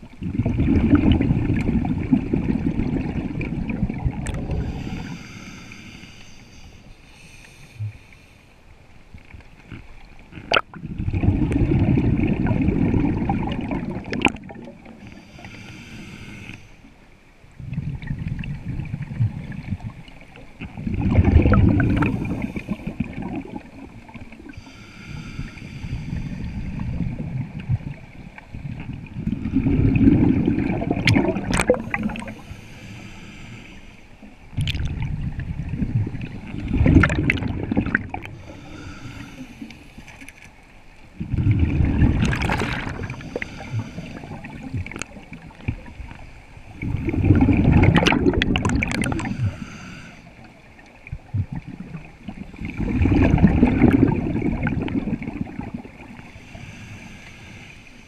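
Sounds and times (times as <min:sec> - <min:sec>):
exhaled air bubbling underwater: 0:00.0 - 0:08.2, 0:09.3 - 0:16.6, 0:17.5 - 0:40.2, 0:40.9 - 0:58.0
regulator inhale hiss: 0:04.5 - 0:08.7, 0:15.0 - 0:17.0, 0:22.0 - 0:23.1, 0:24.4 - 0:27.1, 0:31.7 - 0:34.4, 0:38.2 - 0:40.3, 0:43.0 - 0:44.8, 0:49.1 - 0:50.6, 0:56.2 - 0:58.0.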